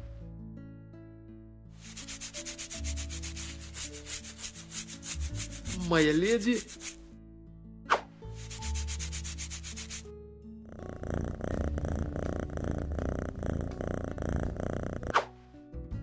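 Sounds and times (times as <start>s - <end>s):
hair being scratched: 1.8s - 7.0s, 8.4s - 10.1s
cat purring: 10.6s - 15.3s.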